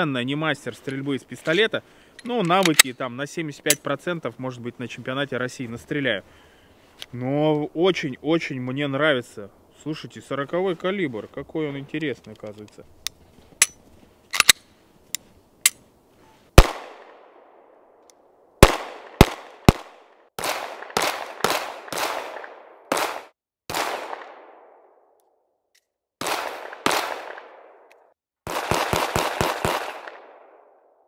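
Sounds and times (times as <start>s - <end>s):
pistol handling clicks: 2.2s - 3.0s, 12.2s - 15.8s
pistol shots with echo: 16.6s - 17.4s, 18.6s - 24.8s, 26.2s - 27.8s, 28.5s - 30.8s.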